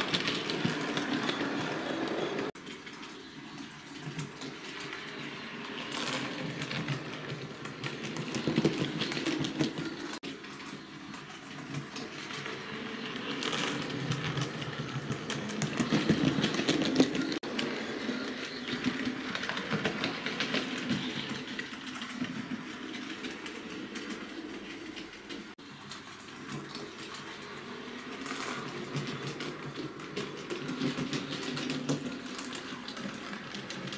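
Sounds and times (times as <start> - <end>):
model train wheels clicking: 0.0 - 33.9.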